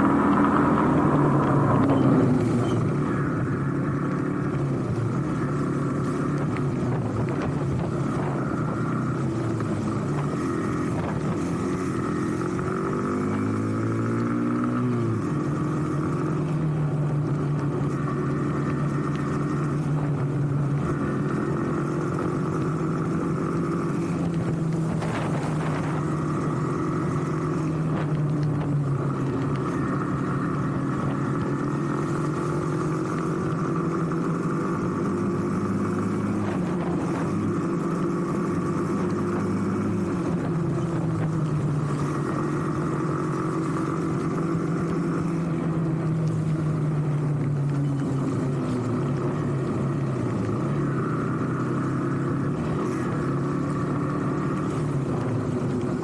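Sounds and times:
small motorcycle engine cruising: 0:00.0 - 0:56.0.

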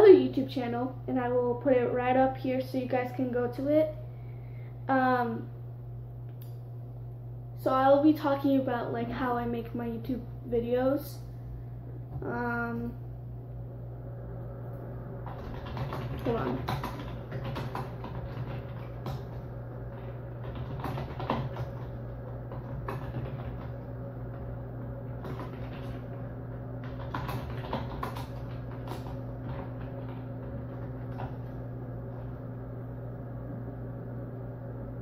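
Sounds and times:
low appliance hum: 0:00.0 - 0:35.0
faint knocks and clicks: 0:15.2 - 0:32.4.

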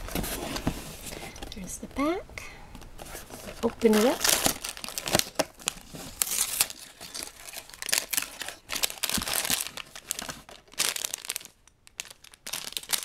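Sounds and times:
plastic bag crinkling: 0:03.0 - 0:13.0
cardboard flap tearing: 0:03.5 - 0:10.4.

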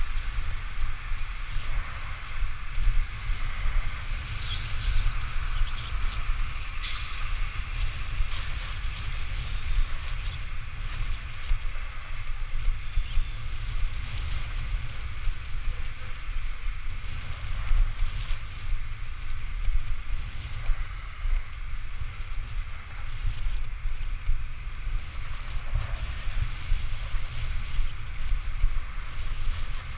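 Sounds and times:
road noise hiss: 0:00.0 - 0:29.9
wind buffeting microphone: 0:00.0 - 0:29.9.

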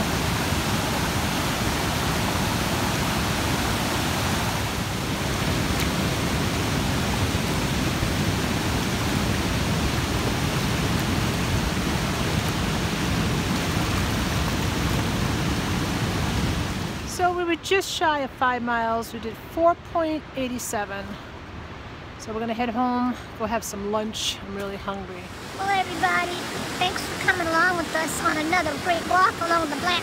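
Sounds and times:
water rushing over dam: 0:00.0 - 0:17.4, 0:25.2 - 0:30.0.

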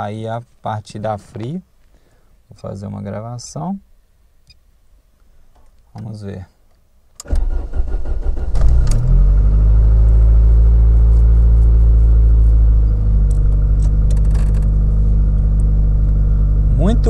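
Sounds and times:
car engine idling: 0:09.2 - 0:17.0.

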